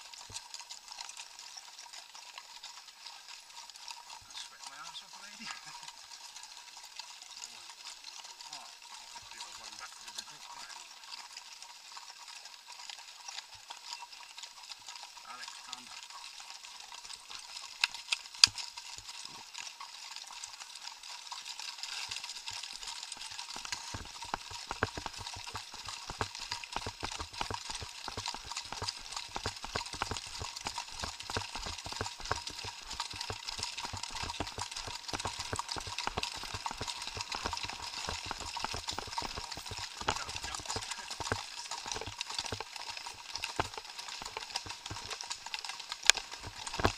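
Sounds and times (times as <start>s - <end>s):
horse hooves on gravel: 22.0s - 46.9s.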